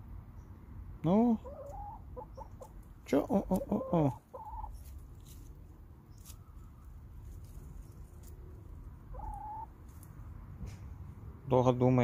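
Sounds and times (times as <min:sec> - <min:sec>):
hen calling softly: 0:01.3 - 0:05.0, 0:09.0 - 0:09.8.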